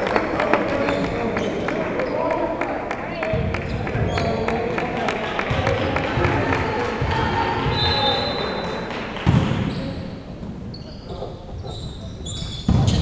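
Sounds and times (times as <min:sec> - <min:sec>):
chatter of people: 0:00.0 - 0:13.0
volleyball being struck: 0:09.2 - 0:09.7
sneakers squeaking on hardwood: 0:09.3 - 0:13.0.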